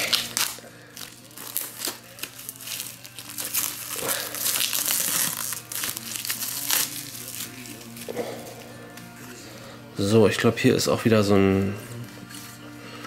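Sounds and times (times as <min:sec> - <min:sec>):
plastic film crinkling and tearing: 0:00.0 - 0:09.1.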